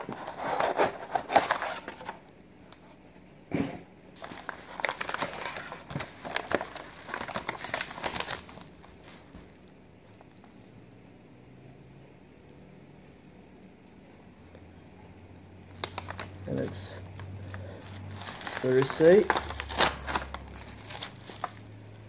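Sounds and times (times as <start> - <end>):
packing material crinkling: 0.0 - 2.2, 4.2 - 9.3, 15.7 - 22.0.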